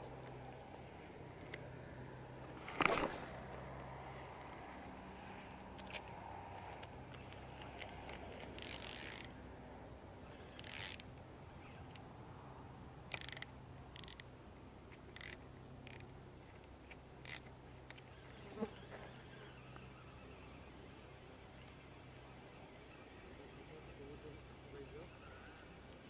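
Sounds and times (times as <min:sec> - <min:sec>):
fishing reel cranking with whine: 0:08.6 - 0:09.4, 0:10.4 - 0:11.1, 0:15.2 - 0:15.4, 0:17.2 - 0:17.5.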